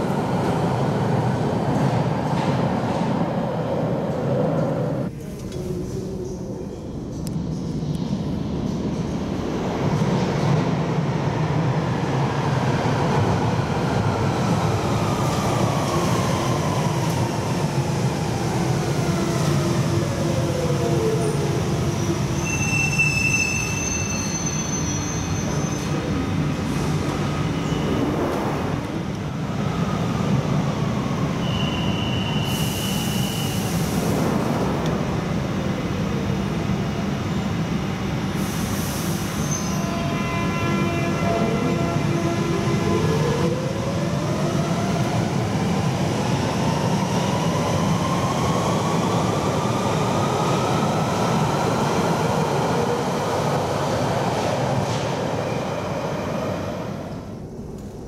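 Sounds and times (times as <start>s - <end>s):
wheel squeal: 22.3s - 26.0s
air hiss: 32.4s - 34.3s, 38.4s - 39.5s.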